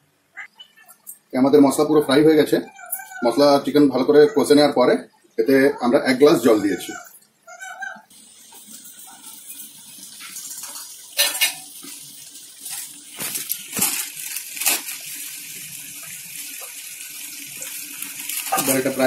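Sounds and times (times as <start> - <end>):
curry sizzling and bubbling: 5.1 - 19.0.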